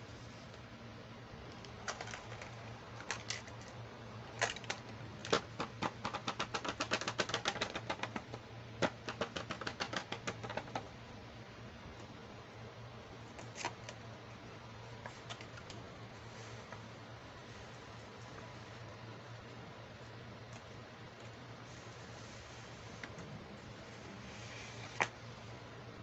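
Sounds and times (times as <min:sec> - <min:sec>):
fingers tapping on packaging: 0:04.4 - 0:10.9.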